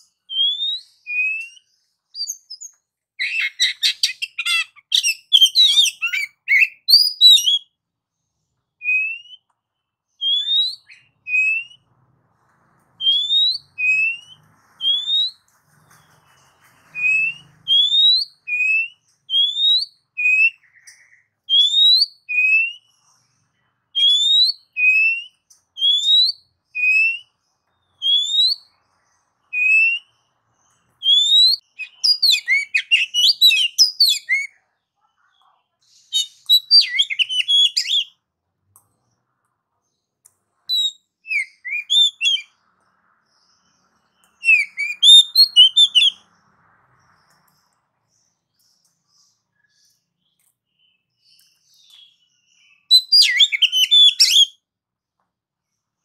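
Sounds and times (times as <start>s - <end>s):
bird singing whistles: 0.1s - 7.8s, 8.8s - 9.5s, 10.2s - 11.9s, 13.0s - 15.4s, 16.0s - 22.9s, 24.0s - 27.4s, 28.0s - 28.8s, 29.5s - 30.2s, 31.0s - 34.5s, 36.1s - 38.2s, 40.7s - 42.6s, 44.3s - 46.2s, 50.8s - 54.6s.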